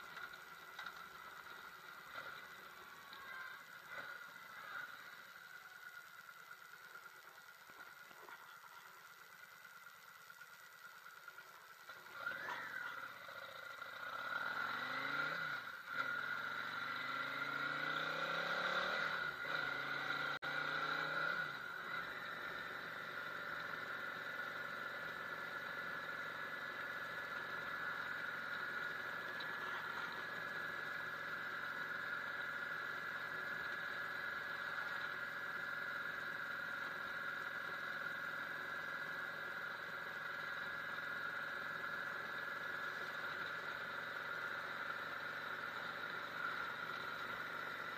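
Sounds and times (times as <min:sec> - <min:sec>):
motorcycle engine accelerating: 0:11.8 - 0:47.9.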